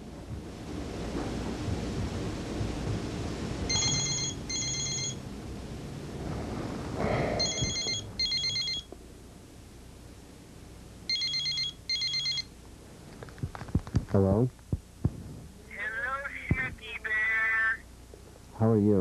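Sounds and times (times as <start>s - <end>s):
mobile phone ringing: 3.7s - 5.2s, 7.4s - 8.9s, 11.1s - 12.5s.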